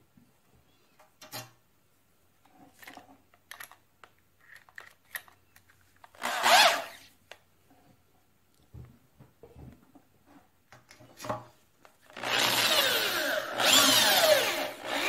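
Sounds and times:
drill whirring: 6.2 - 7.0, 12.1 - 15.0.

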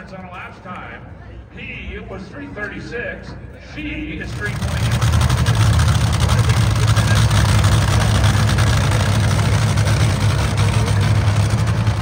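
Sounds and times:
dragster engine idling: 4.0 - 12.0.

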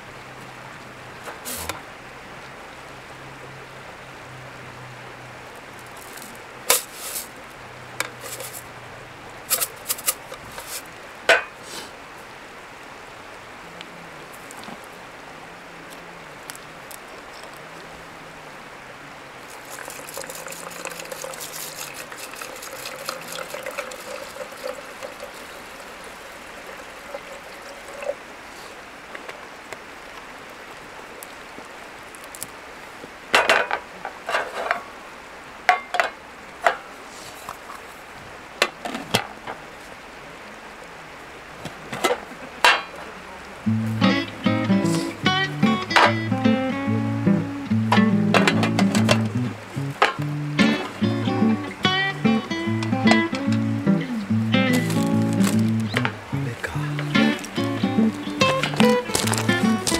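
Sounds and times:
water pouring into metal tin: 19.5 - 28.2.

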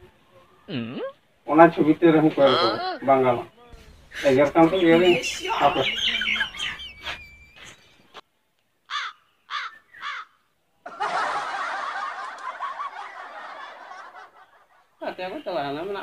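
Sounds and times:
dubbed-in laughter: 4.2 - 7.8, 10.9 - 14.9
crow cawing: 8.9 - 10.4.

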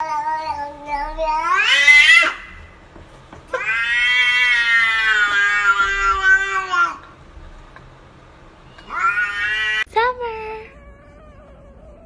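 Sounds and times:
cat meowing and yowling: 0.0 - 2.5, 3.5 - 7.0, 8.8 - 9.9.

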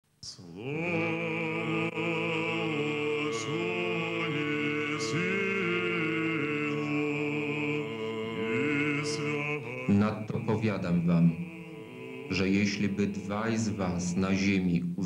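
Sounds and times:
choir chanting held chords: 0.4 - 15.0.

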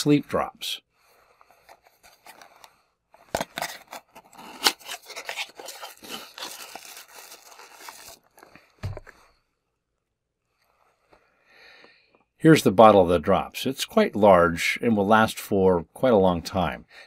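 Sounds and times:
paperboard rustling and scraping: 3.3 - 9.2.

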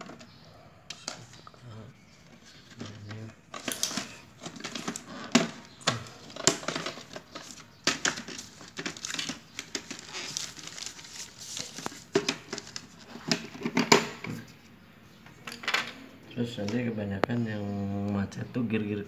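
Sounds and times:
plastic parts clicking and knocking: 0.0 - 1.5, 2.2 - 14.4
newspaper rustling: 2.3 - 13.7.

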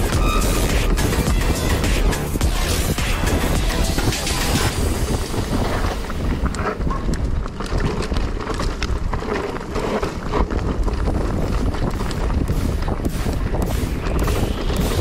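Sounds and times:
wind buffeting microphone: 0.0 - 15.0
mountain bike rattling on rocks: 3.2 - 15.0.

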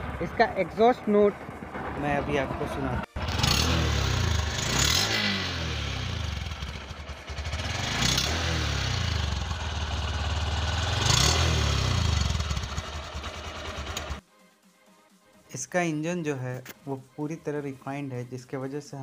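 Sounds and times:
motorcycle engine idling: 3.2 - 14.2
motorcycle throttle blips: 3.2 - 14.2.

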